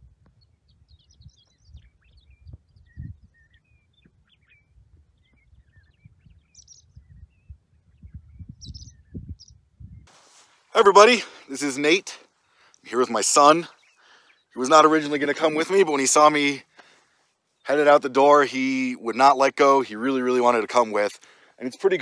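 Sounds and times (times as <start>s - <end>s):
wind on the microphone: 0.0s - 10.2s
small birds chirping: 0.0s - 22.0s.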